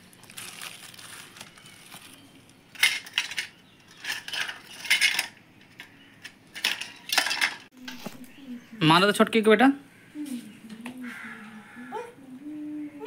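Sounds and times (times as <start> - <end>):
toys clinking and clattering: 2.8 - 8.0.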